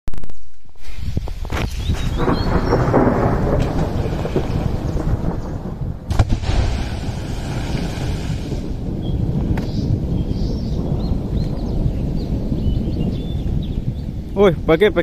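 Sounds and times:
underwater explosion boom: 2.2s - 11.8s
steady low rumble: 2.2s - 15.0s
water splashing and pattering down: 6.1s - 9.7s.

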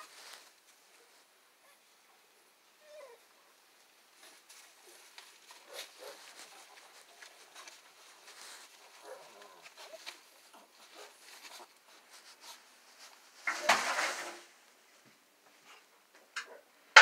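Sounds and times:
puppies rustling in straw: 0.0s - 1.3s, 4.1s - 13.5s.

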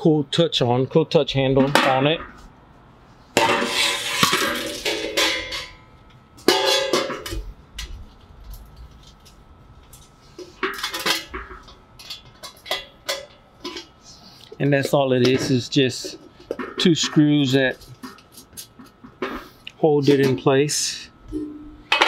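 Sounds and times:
metal lid clanging and ringing: 3.4s - 7.4s.

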